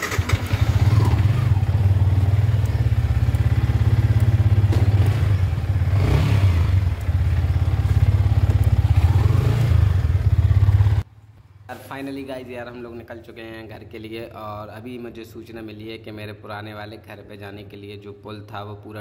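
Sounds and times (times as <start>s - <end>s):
motorcycle engine rumbling: 0.0s - 11.9s.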